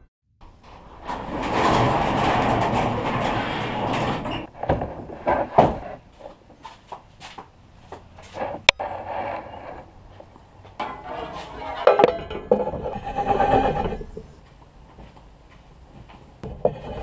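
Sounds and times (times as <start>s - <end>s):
garage door rattling on tracks: 0.5s - 5.0s.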